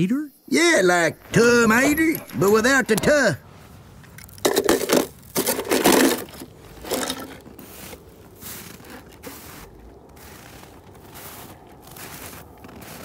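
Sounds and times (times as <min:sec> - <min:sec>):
toy cars scraping: 0:04.2 - 0:07.7.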